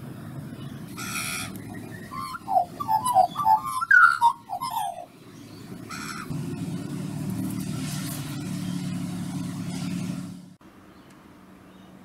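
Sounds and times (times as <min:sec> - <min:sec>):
low vehicle engine rumble: 0:00.0 - 0:12.0
magpies warbling calls: 0:00.6 - 0:06.4.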